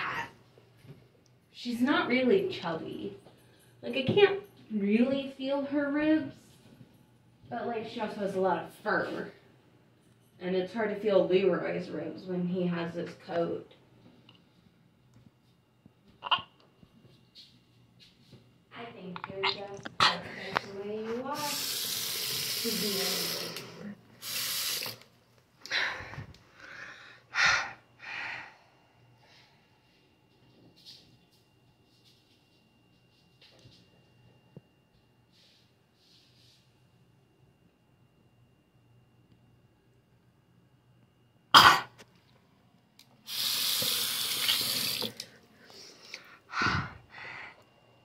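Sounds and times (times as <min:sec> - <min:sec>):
water running from a tap: 0:21.4 - 0:25.0, 0:43.3 - 0:45.3
person breathing hard: 0:25.6 - 0:29.7, 0:45.6 - 0:47.6
person clearing throat: 0:41.5 - 0:42.0
person coughing: 0:41.6 - 0:42.0.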